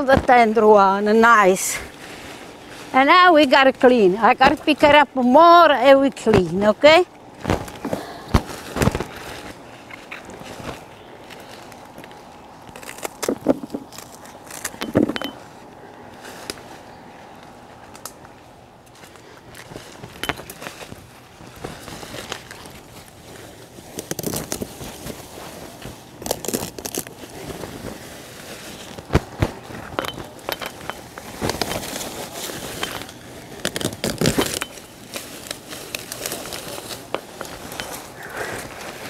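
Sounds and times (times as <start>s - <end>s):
leaves and stalks rustling: 0.0s - 39.0s
stalk snapping: 7.4s - 14.9s, 23.9s - 25.1s, 26.2s - 27.9s, 28.8s - 39.0s.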